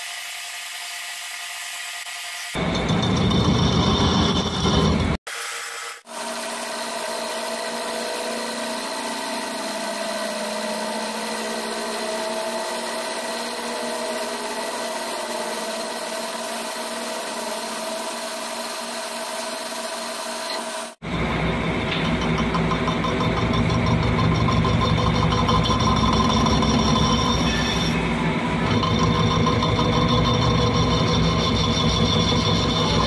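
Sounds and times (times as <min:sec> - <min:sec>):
lathe whine: 0:00.0 - 0:33.0
deep machine sound: 0:02.6 - 0:05.2, 0:21.0 - 0:33.0.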